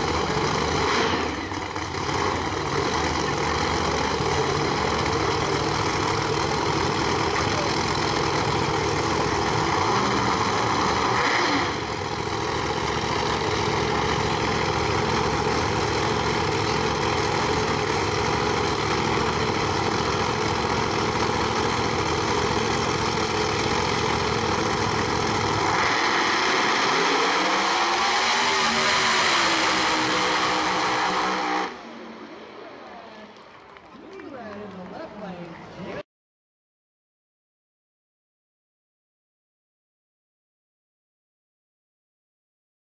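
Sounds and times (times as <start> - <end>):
drag car engines idling: 0.0 - 27.2
engine revving up: 0.0 - 32.8.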